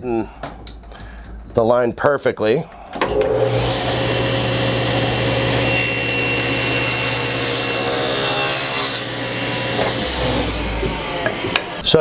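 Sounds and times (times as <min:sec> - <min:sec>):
saw blade whine cutting wood: 0:03.0 - 0:12.0
table saw running: 0:03.0 - 0:12.0.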